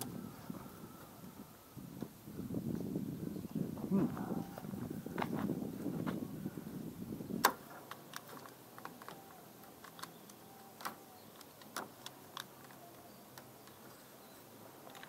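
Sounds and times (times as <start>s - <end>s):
tools and wood clicking: 7.4s - 14.0s.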